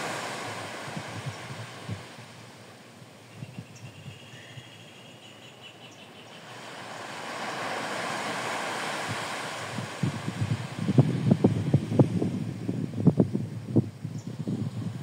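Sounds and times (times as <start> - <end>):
small wave breaking on sand: 0.0 - 2.1, 6.5 - 11.1
wind buffeting microphone: 0.0 - 2.4, 8.0 - 15.0.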